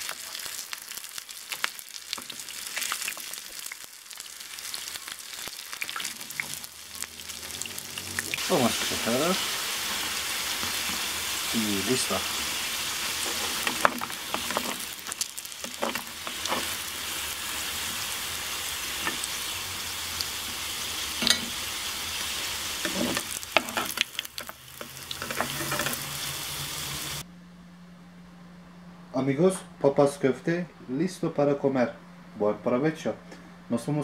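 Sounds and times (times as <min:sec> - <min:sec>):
patties sizzling in oil: 0:00.0 - 0:27.2
metal spatula scraping pan: 0:22.8 - 0:24.0, 0:25.2 - 0:26.1.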